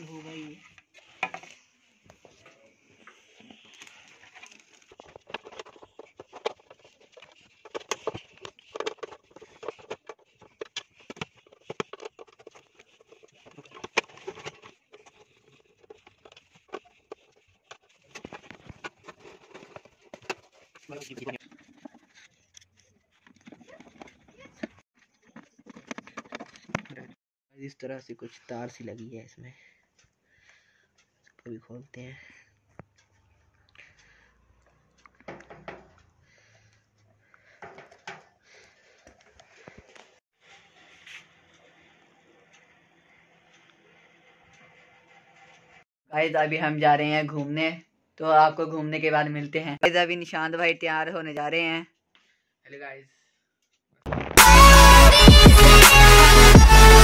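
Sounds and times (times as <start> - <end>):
power cord rustling and rubbing: 0.4 - 27.2
screwdriver clicks and scrapes: 3.1 - 20.5
cord tapping plastic base: 3.8 - 17.2, 35.0 - 36.0.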